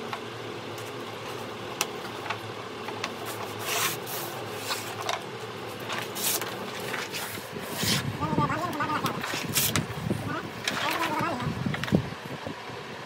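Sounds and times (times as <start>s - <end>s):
steady low hum: 0.0s - 13.0s
stiff paper rustling and scraping: 0.8s - 8.2s, 9.0s - 10.0s.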